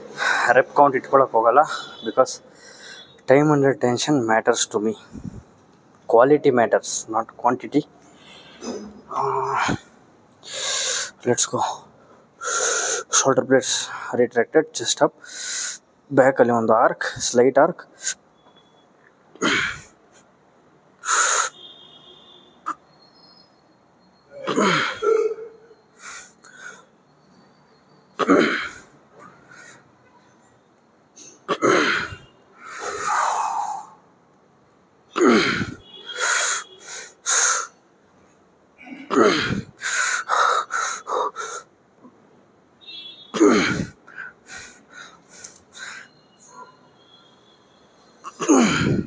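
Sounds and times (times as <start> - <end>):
sharp puffs of breath: 1.8 - 3.2, 8.1 - 9.0, 9.7 - 11.2, 12.1 - 13.2, 15.2 - 15.9, 21.0 - 21.6, 25.9 - 27.0, 28.7 - 29.9, 32.1 - 34.1, 35.4 - 37.8, 39.4 - 41.7, 43.7 - 46.2
man grunting and exhaling: 8.6 - 9.9, 19.4 - 19.9, 24.3 - 26.3, 28.2 - 28.9, 31.5 - 34.0, 35.2 - 35.8, 38.8 - 41.7, 43.4 - 44.8, 48.3 - 49.0.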